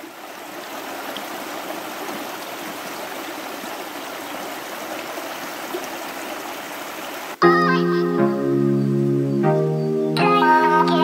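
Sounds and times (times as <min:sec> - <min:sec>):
river flowing over rocks: 0:00.0 - 0:07.4.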